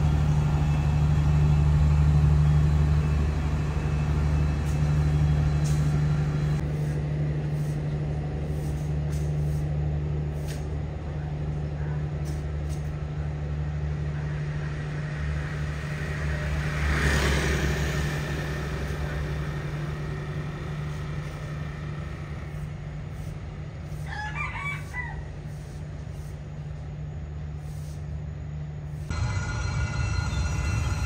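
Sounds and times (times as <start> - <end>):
passing traffic: 0.0 - 7.6, 13.7 - 24.1
rooster crowing: 24.0 - 25.3.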